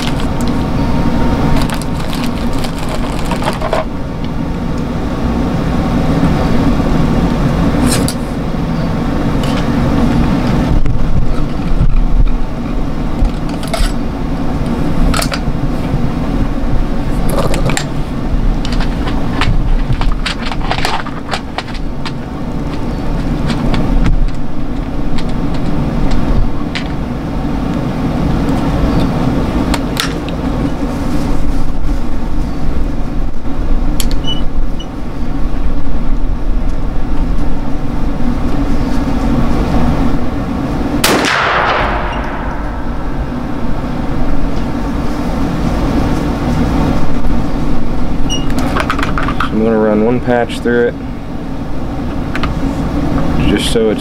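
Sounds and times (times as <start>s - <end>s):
low motor drone: 0.0s - 54.0s
gunshot bang: 41.0s - 43.2s.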